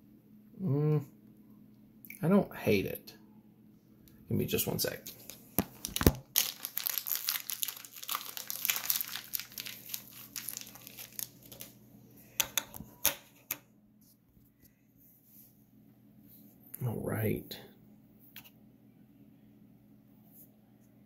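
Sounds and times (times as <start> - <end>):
plastic bag crinkling: 4.9 - 11.8.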